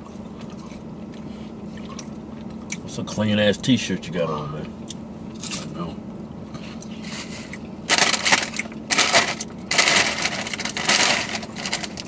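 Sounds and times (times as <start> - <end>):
foil chip bag crinkling: 7.9 - 12.0.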